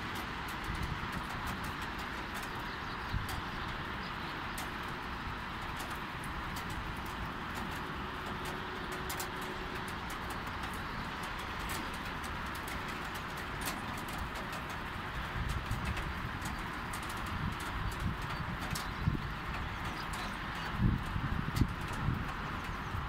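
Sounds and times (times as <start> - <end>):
light rain hiss: 0.0 - 23.0
raindrops ticking on hard surface: 0.0 - 23.0.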